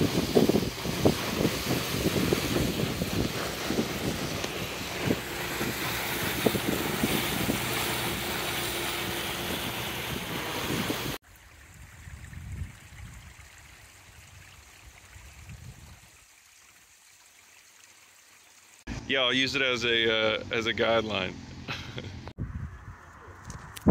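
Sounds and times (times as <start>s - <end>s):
boat engine running: 0.0s - 11.2s
wind buffeting microphone: 0.0s - 13.5s, 15.2s - 16.0s, 22.4s - 23.9s
rushing water: 0.0s - 18.9s.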